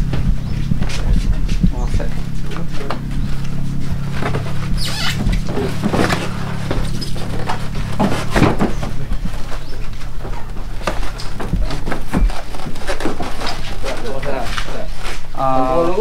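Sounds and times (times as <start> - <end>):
knocks and scrapes: 0.0 - 15.4
steady low hum: 0.0 - 16.0
plastic rustling: 3.0 - 15.4.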